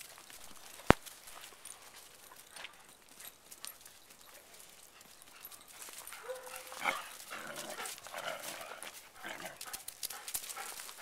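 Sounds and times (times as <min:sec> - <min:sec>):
dog yipping: 0:06.2 - 0:07.0
dogs growling in rough play: 0:06.6 - 0:09.9.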